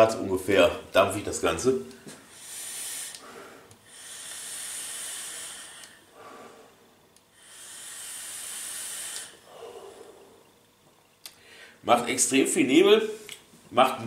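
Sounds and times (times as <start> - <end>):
hissing e-cigarette draw: 2.3 - 6.1, 7.4 - 9.4
person exhaling: 2.3 - 10.5.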